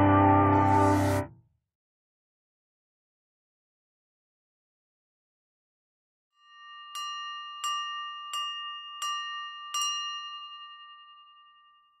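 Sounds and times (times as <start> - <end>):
bell-like chime strikes: 6.4 - 12.0.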